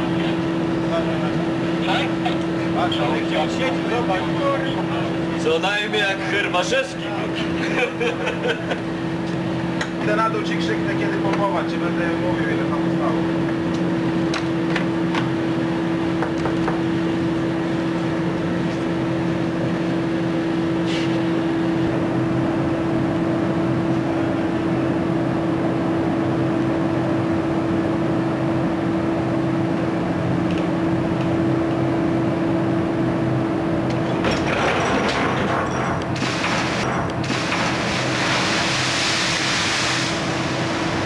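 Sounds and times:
ship machinery drone: 0.0 - 41.0
loud rush of noise: 36.2 - 41.0.

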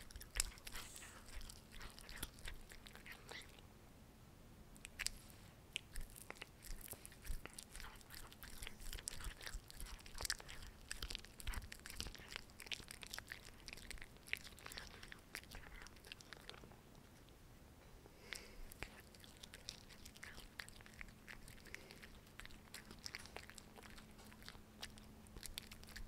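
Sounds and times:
cat chewing food: 0.0 - 3.6, 4.8 - 17.4, 18.1 - 26.0.

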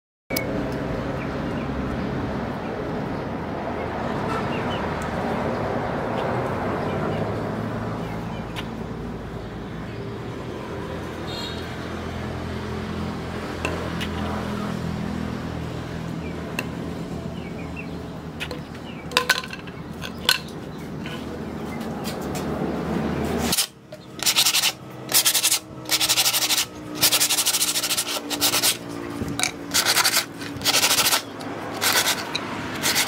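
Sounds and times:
chisel on concrete floor: 23.5 - 33.0.

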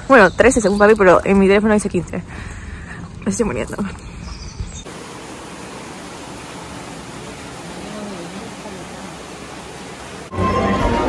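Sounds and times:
steady rushing hiss: 4.8 - 10.3.

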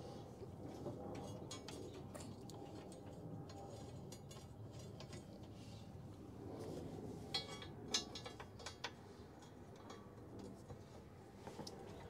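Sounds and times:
metallic clicks and rattles: 7.3 - 10.6.

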